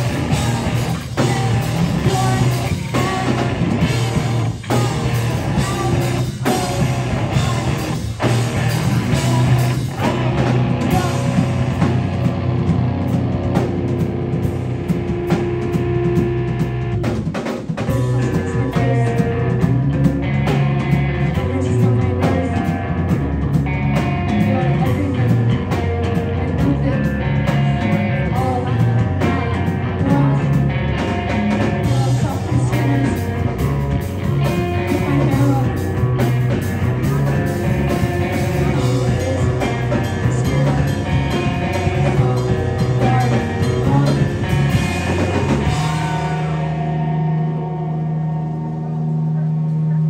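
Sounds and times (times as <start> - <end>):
hardcore band playing live: 0.0 - 50.0.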